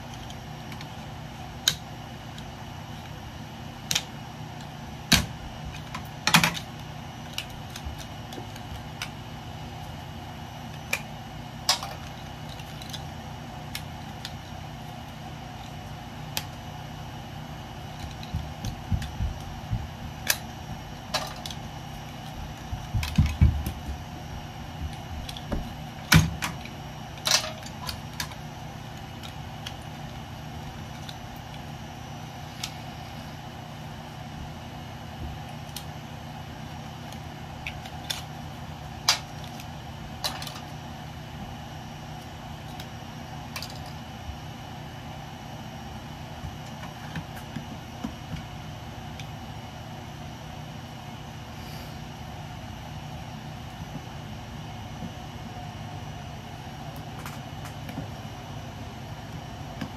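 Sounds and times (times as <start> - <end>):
steady background hum: 0.0 - 59.9
metal parts clicking and knocking: 26.1 - 28.4.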